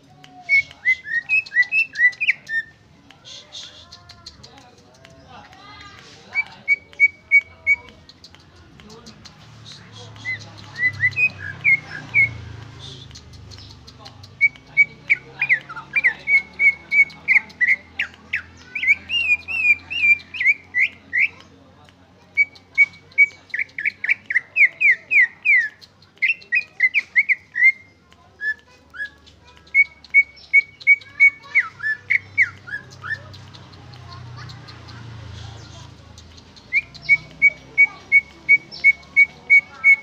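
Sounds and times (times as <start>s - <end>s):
bird singing whistled notes: 0.3s - 3.8s, 9.6s - 21.4s, 22.3s - 33.4s, 36.3s - 40.0s.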